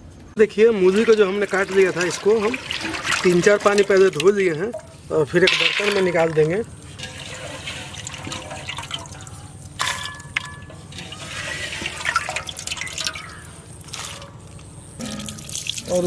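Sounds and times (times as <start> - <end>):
water splashing and dripping: 0.8 - 16.0
slices dropping into steel colander: 5.4 - 7.2, 9.0 - 11.2.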